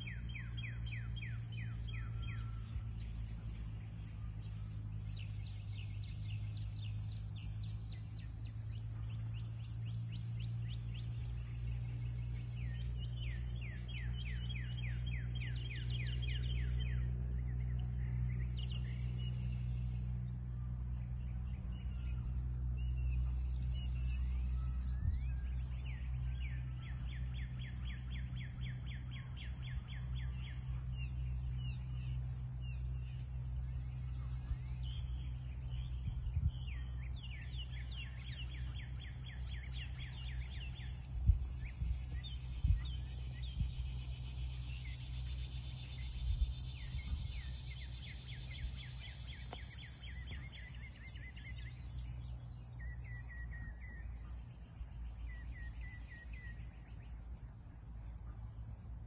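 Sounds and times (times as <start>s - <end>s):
steady low rumble: 0.0s - 59.0s
rapid high chattering calls: 21.1s - 59.0s.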